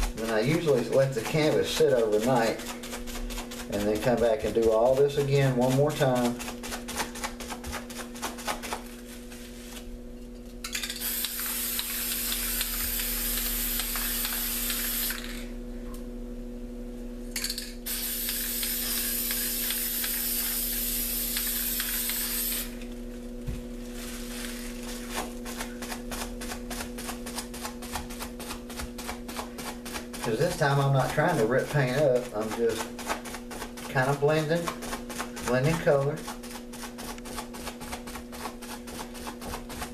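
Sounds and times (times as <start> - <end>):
low hum: 8.8 - 31.1
spray paint can hissing: 11.0 - 15.5, 17.8 - 22.9.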